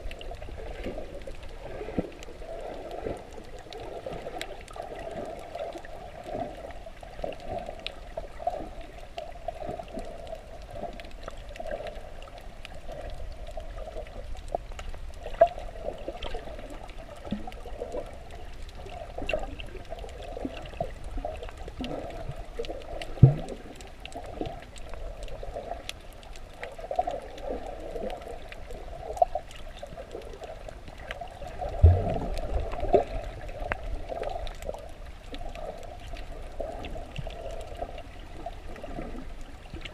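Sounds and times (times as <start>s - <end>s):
underwater sloshing and gurgling: 0.0s - 39.9s
low underwater thumps: 31.7s - 32.8s.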